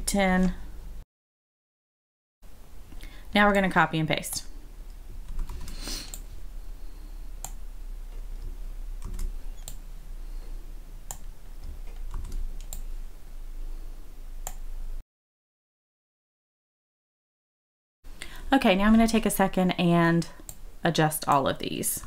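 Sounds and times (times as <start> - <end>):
faint low hum: 2.5 - 15.0
keyboard and mouse clicks: 5.2 - 6.2, 8.4 - 9.8, 11.1 - 12.9, 14.4 - 14.6.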